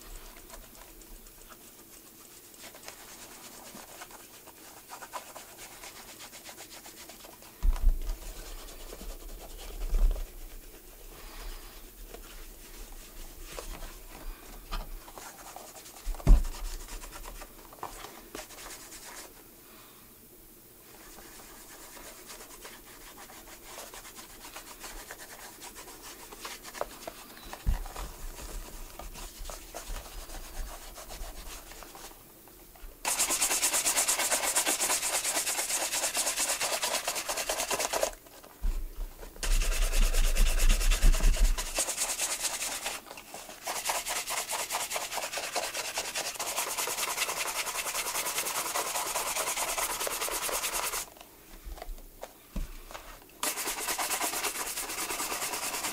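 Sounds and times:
sanding leather sole: 33.0 - 38.2, 39.4 - 51.1, 53.4 - 55.9.

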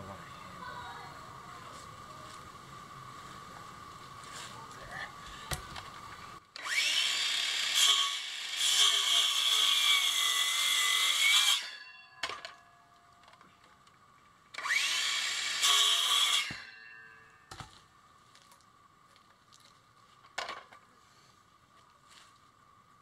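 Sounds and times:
circular saw cutting wood: 6.6 - 12.0, 14.5 - 17.3.

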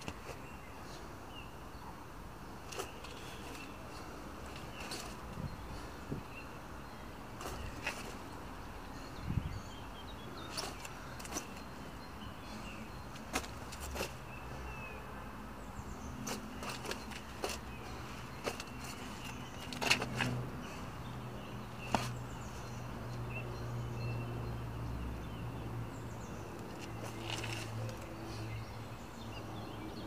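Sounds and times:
low outdoor background: 0.0 - 30.0.

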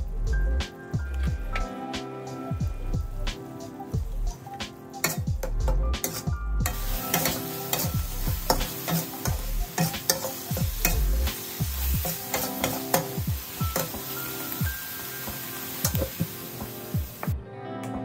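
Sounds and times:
food sizzling: 0.1 - 17.4
spatula scraping a wok: 6.0 - 14.5.

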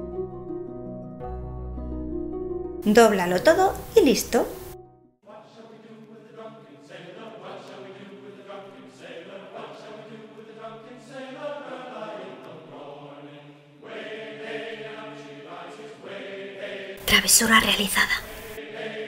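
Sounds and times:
choir-like voices singing held notes: 5.2 - 19.0.

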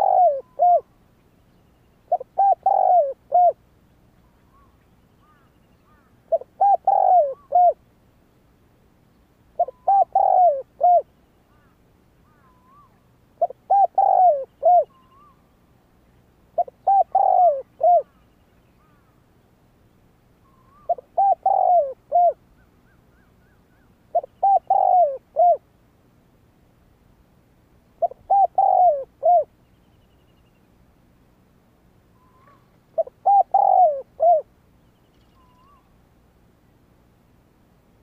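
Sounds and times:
dove cooing: 0.0 - 1.0, 2.1 - 3.6, 4.4 - 7.8, 9.6 - 11.7, 12.3 - 15.4, 16.6 - 18.2, 20.5 - 25.6, 28.0 - 29.5, 32.2 - 34.5, 35.3 - 35.9.

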